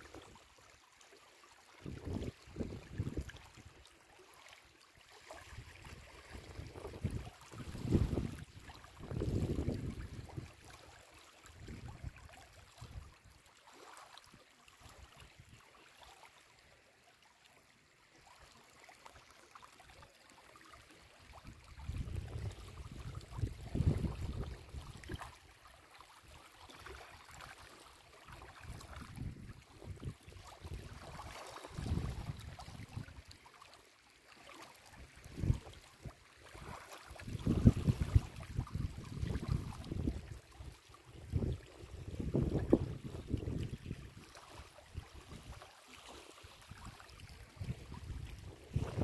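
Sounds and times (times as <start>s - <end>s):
lake waves lapping on stones: 5.0s - 11.8s, 20.8s - 33.7s, 34.3s - 49.0s
wind buffeting microphone: 6.4s - 10.5s, 21.7s - 25.2s, 37.2s - 40.4s, 41.2s - 44.1s, 47.6s - 49.0s.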